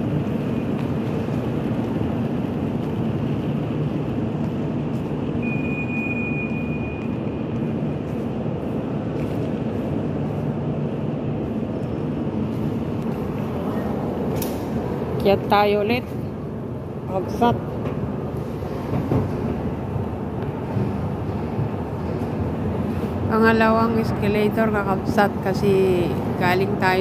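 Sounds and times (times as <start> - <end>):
station low rumble: 0.0 - 27.0
high beep: 5.4 - 7.2.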